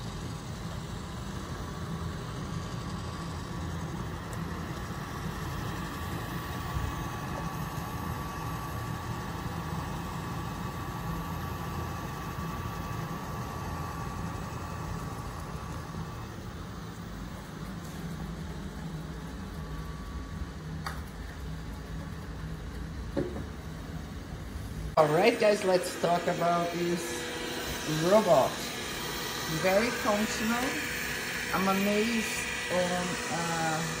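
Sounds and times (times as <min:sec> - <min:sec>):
robot vacuum motor whir: 0:00.0 - 0:20.8, 0:25.0 - 0:34.0
thin whine: 0:00.0 - 0:34.0.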